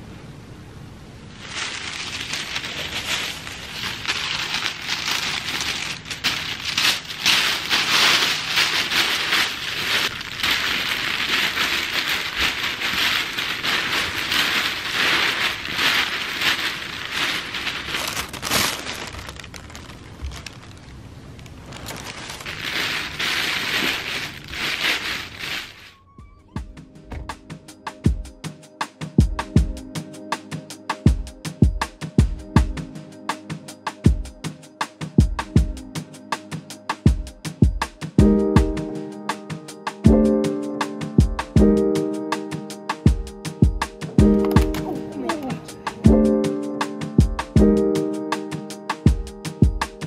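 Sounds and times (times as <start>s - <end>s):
tissue paper rustling: 1.3s - 26.0s, 44.0s - 46.7s.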